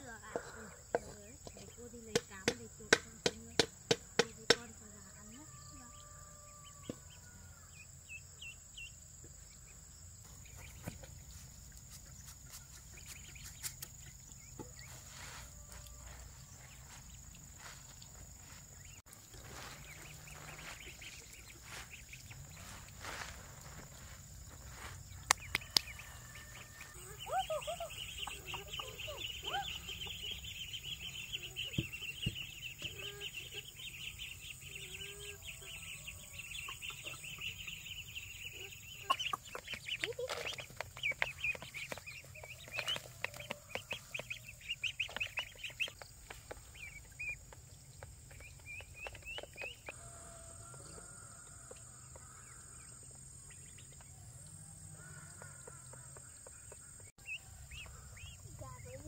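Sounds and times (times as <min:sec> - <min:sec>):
chickens clucking: 0:10.2 - 0:52.4.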